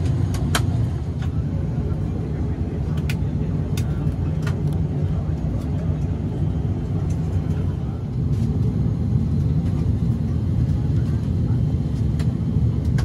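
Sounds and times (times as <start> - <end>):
airplane cabin rumble: 0.0 - 13.0.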